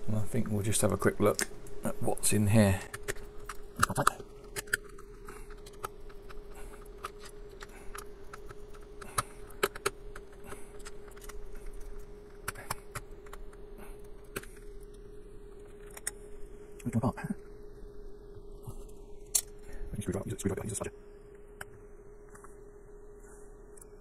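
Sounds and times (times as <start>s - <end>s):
faint steady hum: 0.0s - 24.0s
handling small plastic parts: 2.8s - 16.2s.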